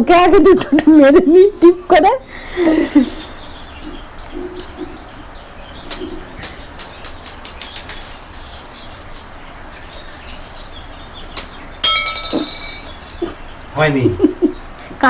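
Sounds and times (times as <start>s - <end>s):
glass marbles clicking: 11.4s - 13.2s
marble tapping floor: 11.8s - 13.2s.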